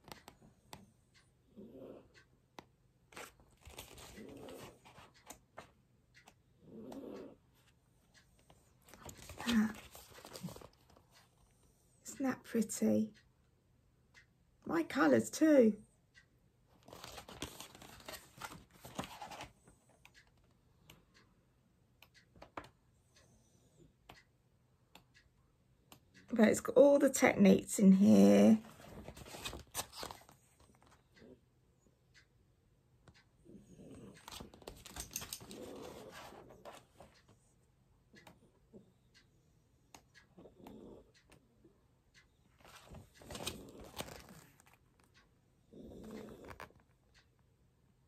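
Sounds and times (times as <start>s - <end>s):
book pages turning: 3.1s - 5.4s, 8.9s - 11.0s, 16.8s - 19.6s, 28.6s - 31.0s, 42.6s - 45.1s
faint taps and clicks: 22.0s - 22.8s.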